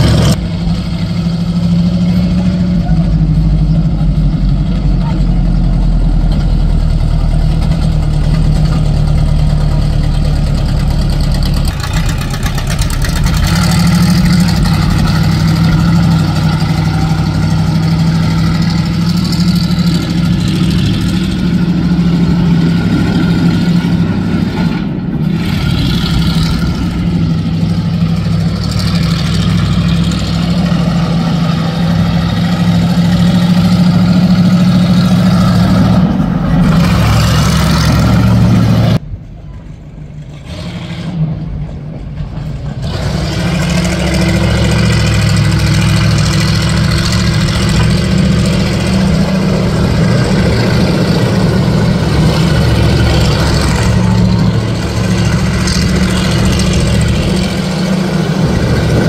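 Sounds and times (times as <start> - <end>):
car engine running: 43.4 - 59.0.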